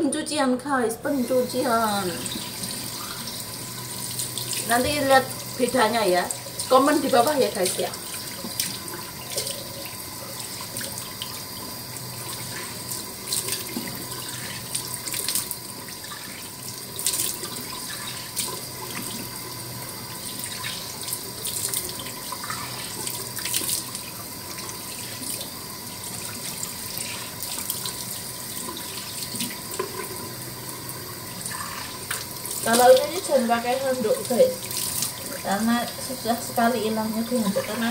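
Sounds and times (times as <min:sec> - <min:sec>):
tap running into sink: 0:04.2 - 0:05.6, 0:28.6 - 0:30.8
water splashes from rinsing face: 0:31.2 - 0:37.9.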